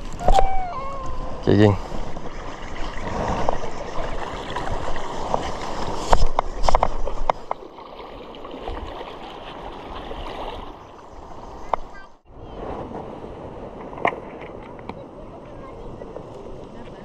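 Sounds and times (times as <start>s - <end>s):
water lapping on shoreline: 0.0s - 17.0s
wind rushing: 12.2s - 14.6s.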